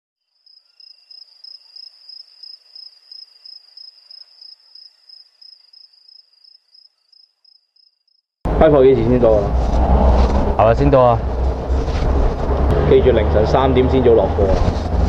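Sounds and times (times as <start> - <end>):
cricket chirping: 0.2 - 8.3.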